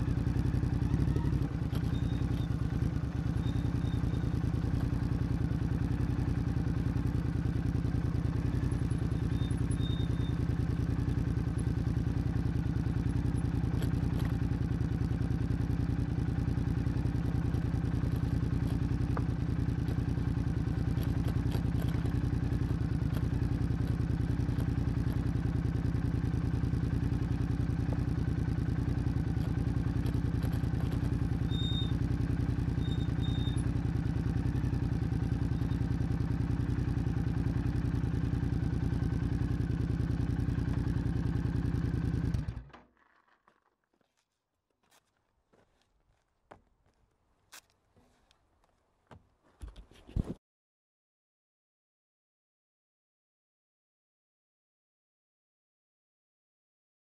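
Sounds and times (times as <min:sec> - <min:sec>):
motorcycle engine running steadily: 0:00.0 - 0:42.8.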